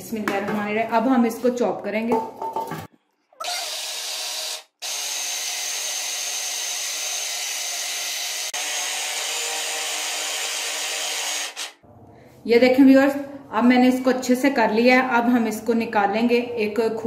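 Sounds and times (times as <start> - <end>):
food processor motor whining: 3.4 - 11.7.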